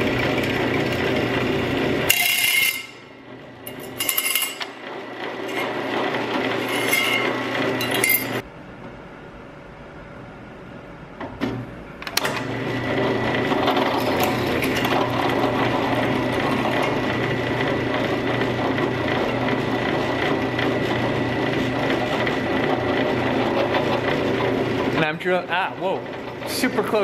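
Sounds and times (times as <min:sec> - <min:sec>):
drill bit cutting metal whine: 0:00.0 - 0:08.4, 0:12.6 - 0:25.0
drill press motor hum: 0:00.0 - 0:08.5, 0:12.0 - 0:27.0.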